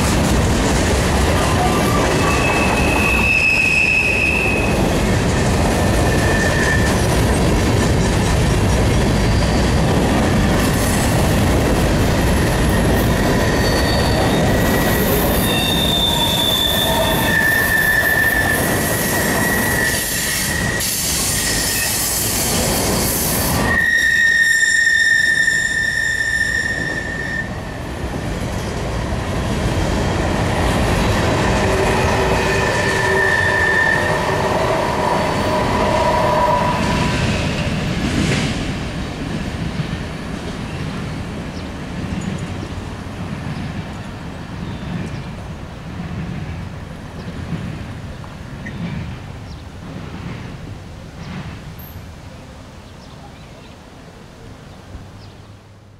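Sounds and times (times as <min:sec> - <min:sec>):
train wheels rumbling on rail: 0:00.0 - 0:53.3
high-pitched wheel squeal: 0:01.8 - 0:04.8, 0:06.0 - 0:07.1, 0:12.6 - 0:22.2, 0:23.6 - 0:27.6, 0:31.7 - 0:37.2.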